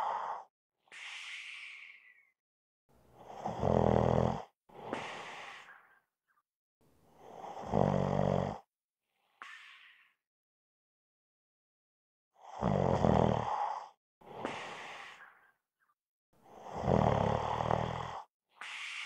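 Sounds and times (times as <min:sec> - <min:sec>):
soft airy breath: 0:00.0 - 0:02.4, 0:04.7 - 0:06.1, 0:13.7 - 0:15.6, 0:18.6 - 0:19.0
person snoring: 0:03.2 - 0:05.8, 0:07.2 - 0:08.7, 0:12.4 - 0:15.4, 0:16.4 - 0:19.0.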